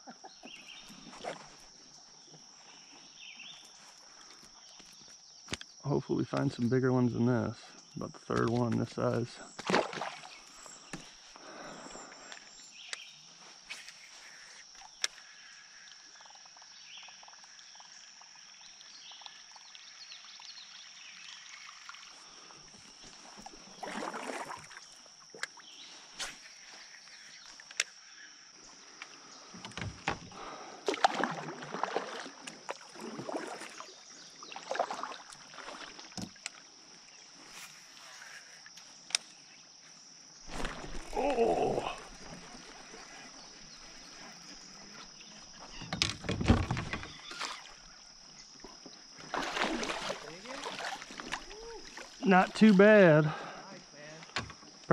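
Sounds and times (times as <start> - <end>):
paddle strokes swishing water: 22.0 - 27.6, 29.4 - 38.6, 40.5 - 45.9, 46.6 - 52.8.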